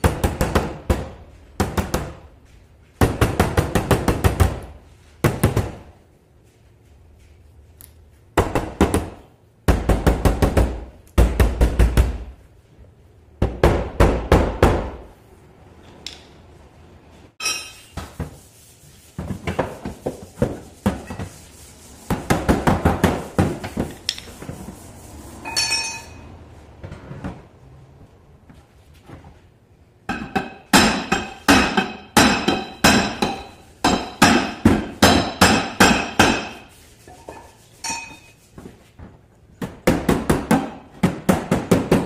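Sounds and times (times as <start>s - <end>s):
hammer tapping on steel panel: 30.1s - 36.6s.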